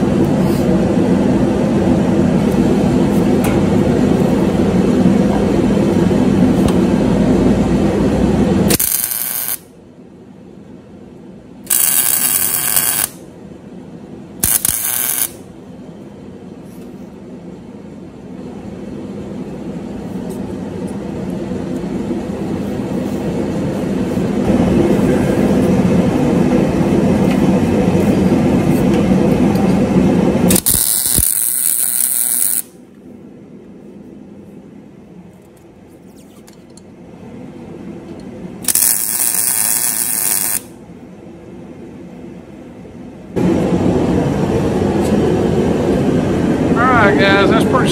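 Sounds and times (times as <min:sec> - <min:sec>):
low machine drone: 0:00.0 - 0:36.0, 0:36.8 - 0:47.9
welding arc crackling: 0:08.6 - 0:09.7, 0:11.7 - 0:13.2, 0:14.4 - 0:15.4, 0:30.5 - 0:32.8, 0:38.6 - 0:40.7.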